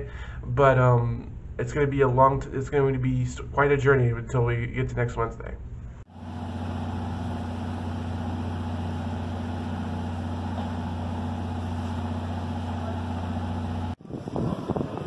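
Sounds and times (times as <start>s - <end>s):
engine idling: 6.1s - 14.0s.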